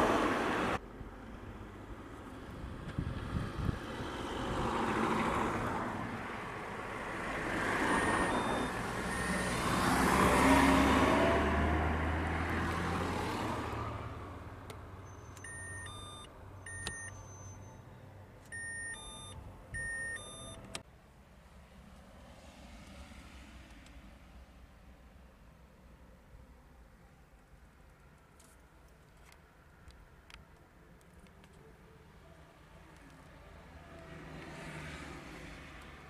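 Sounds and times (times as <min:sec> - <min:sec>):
road traffic rumble: 0:00.0 - 0:36.0
short electronic beeps: 0:07.9 - 0:09.5, 0:15.0 - 0:20.7.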